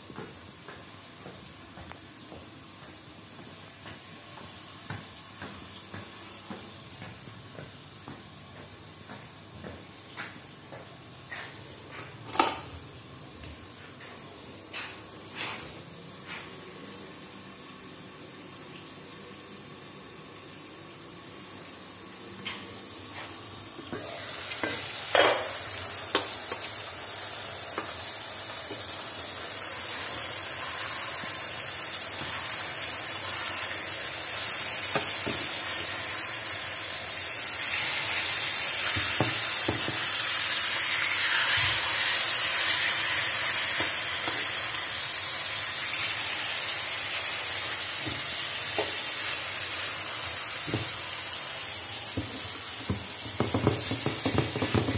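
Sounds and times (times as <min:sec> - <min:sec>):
chicken sizzling in a frying pan: 0:16.8 - 0:54.9.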